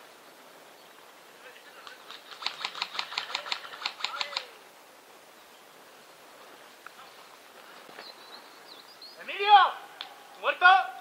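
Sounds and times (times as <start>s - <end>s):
airsoft rifle shots: 2.1s - 4.5s.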